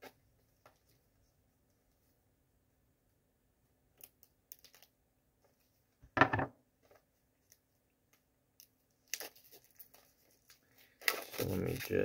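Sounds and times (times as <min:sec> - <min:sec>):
hands clicking and scratching packaging: 0:04.0 - 0:04.9, 0:07.5 - 0:12.0
rustling knock: 0:06.0 - 0:06.5.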